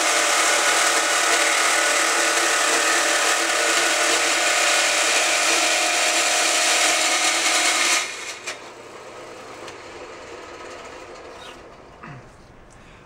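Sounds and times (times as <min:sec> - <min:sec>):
band saw cutting sheet steel: 0:00.0 - 0:11.8.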